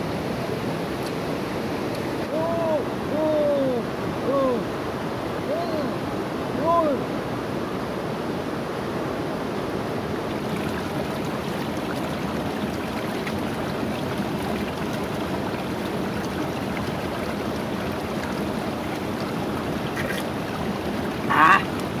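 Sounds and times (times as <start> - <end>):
river rushing over stones: 0.0 - 22.0
water splash: 10.3 - 22.0.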